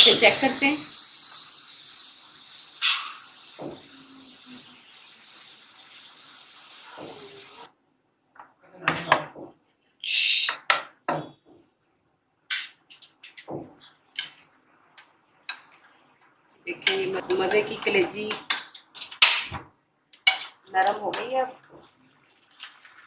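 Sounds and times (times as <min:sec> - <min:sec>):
pressure cooker hissing: 0:00.0 - 0:07.7, 0:16.7 - 0:17.8
spoon stirring in metal pot: 0:16.8 - 0:19.5, 0:20.1 - 0:21.9.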